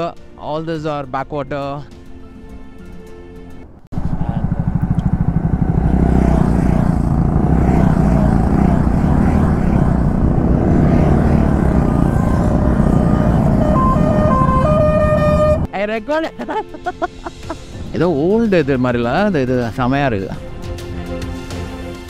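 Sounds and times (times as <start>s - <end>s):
motorcycle engine rumble: 3.9s - 15.7s.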